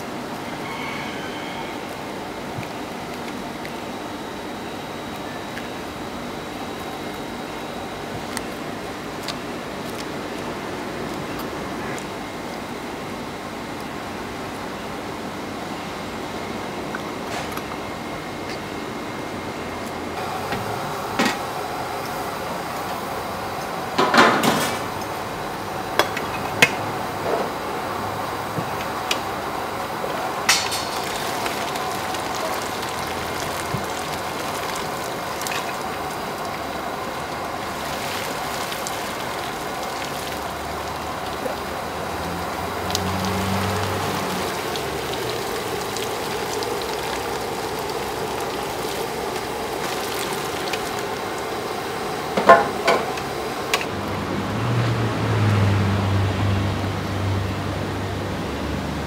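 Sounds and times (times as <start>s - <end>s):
steady background hum: 0.0s - 55.4s
water splashing: 29.6s - 53.8s
ladle clanking on pot: 52.4s - 53.2s.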